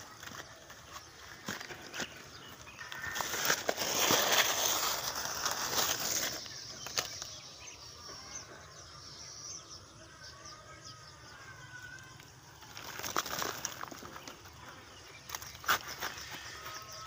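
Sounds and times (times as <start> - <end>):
plastic bag of salt rustling: 0.0 - 7.4, 12.5 - 17.0.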